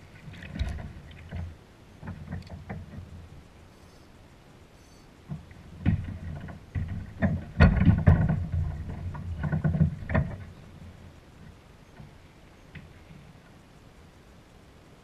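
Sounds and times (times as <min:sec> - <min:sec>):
landing net clunking against kayak: 0:05.3 - 0:10.6.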